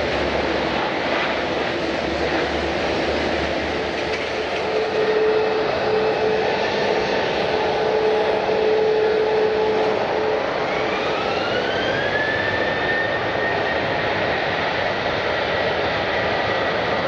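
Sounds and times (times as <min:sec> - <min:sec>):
jet engine roar: 0:00.0 - 0:17.0
jet engine whine: 0:00.0 - 0:17.0.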